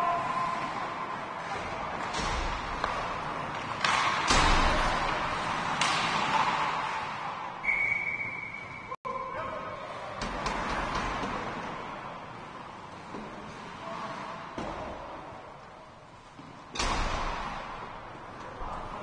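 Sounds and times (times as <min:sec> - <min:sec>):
puck and sticks cracking on boards: 0:02.0 - 0:06.9.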